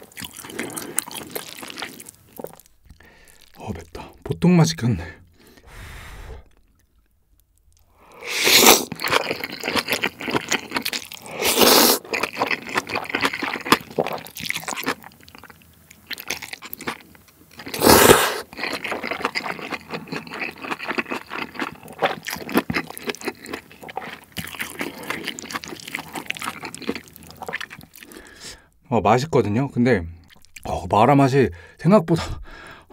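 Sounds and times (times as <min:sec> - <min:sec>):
wet crunchy chewing: 0:00.0 - 0:04.2, 0:06.4 - 0:28.4
noodles slurped loudly: 0:08.2 - 0:14.8, 0:17.6 - 0:23.2.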